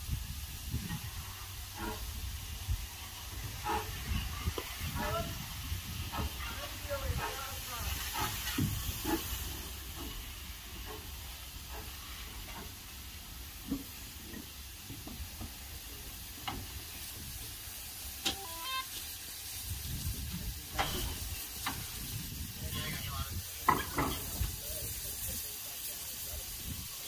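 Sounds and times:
steam locomotive hissing: 0:00.0 - 0:27.0
knocks and clank: 0:20.7 - 0:21.9, 0:23.6 - 0:24.5.

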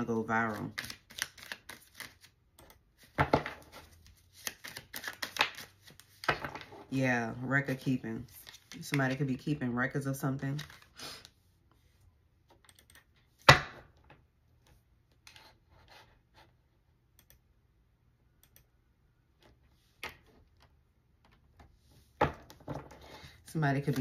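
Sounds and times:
cards clicking and tapping: 0:00.6 - 0:06.7.

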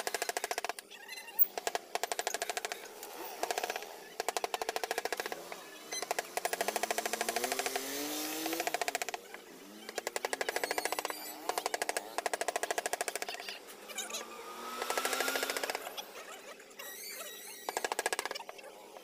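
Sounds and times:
carving tool rattling on wood: 0:00.0 - 0:00.8, 0:01.4 - 0:05.4, 0:06.0 - 0:09.3, 0:09.9 - 0:13.5, 0:14.8 - 0:15.8, 0:17.4 - 0:18.5.

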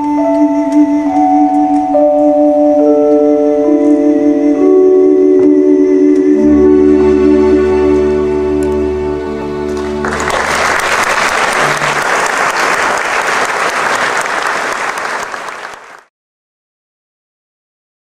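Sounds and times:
audience applause: 0:09.8 - 0:16.1.

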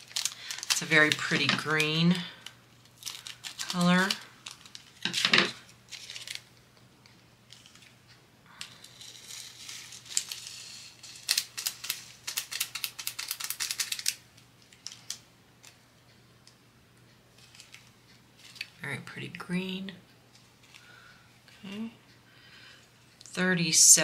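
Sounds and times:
plastic bag crinkling: 0:00.0 - 0:06.6, 0:08.6 - 0:15.2, 0:17.4 - 0:18.8
rattle of small plastic clicks: 0:11.2 - 0:15.8.

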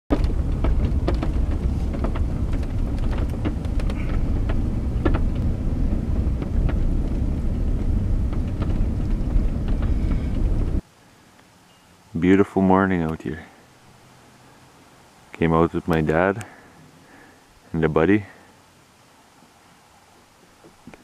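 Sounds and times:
small clicks and knocks: 0:00.1 - 0:10.8
truck engine and tyres rumbling: 0:00.1 - 0:11.0.

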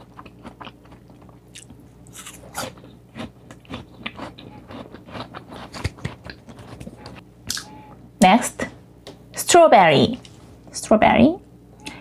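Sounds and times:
chewing crunchy pear: 0:00.0 - 0:07.7.

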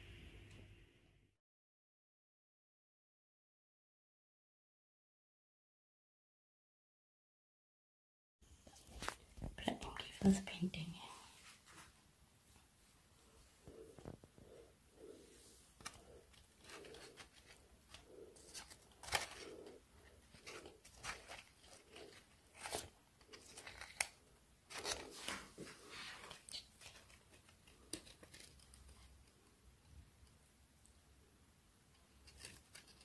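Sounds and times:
paper and plastic crinkling: 0:15.8 - 0:29.3.

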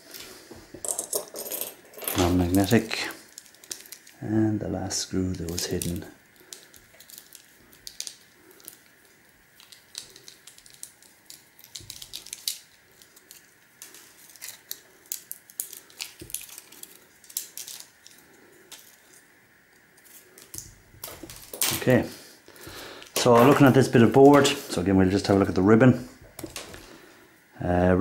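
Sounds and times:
small plastic parts clicking: 0:02.1 - 0:04.2, 0:05.3 - 0:19.1.

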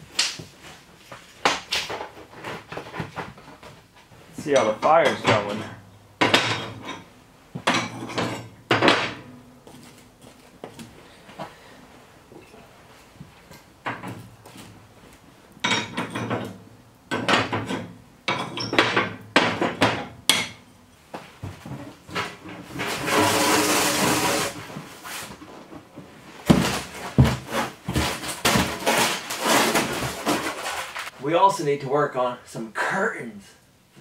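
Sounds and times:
foam board flexing and shuffling: 0:21.5 - 0:31.2
foam board scraping as it slides: 0:22.7 - 0:25.4, 0:26.5 - 0:31.1.

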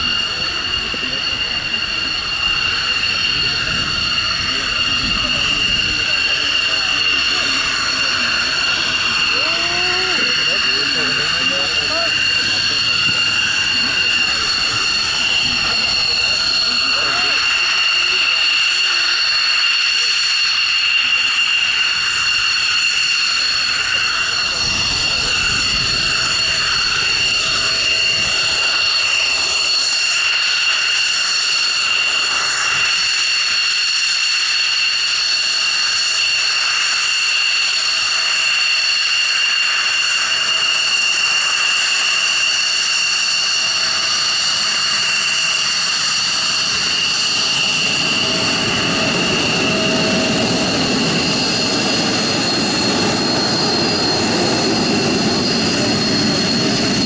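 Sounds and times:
jet engine whine: 0:00.0 - 0:57.0
low jet exhaust rumble: 0:00.0 - 0:57.0.

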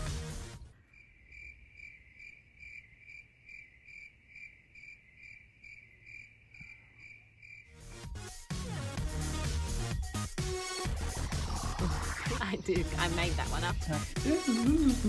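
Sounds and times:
insect chirping: 0:00.6 - 0:07.8.

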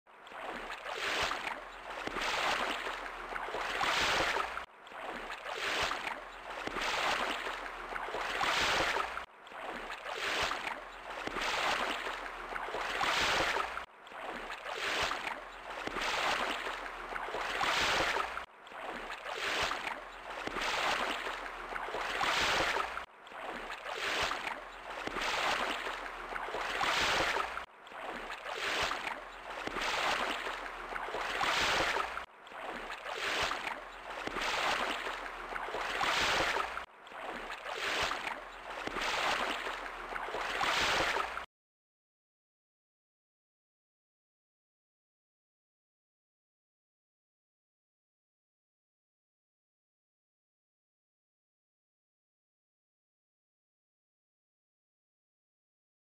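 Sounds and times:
waves breaking on shore: 0:00.1 - 0:41.5.

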